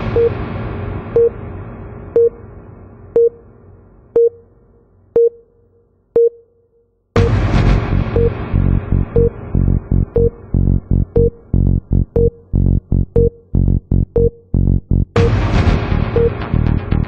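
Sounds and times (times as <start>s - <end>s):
loud musical hit: 0.0s - 3.1s, 7.2s - 12.9s, 15.2s - 17.0s
low rumble: 0.0s - 4.2s, 7.2s - 17.0s
electronic intro music: 7.2s - 17.0s.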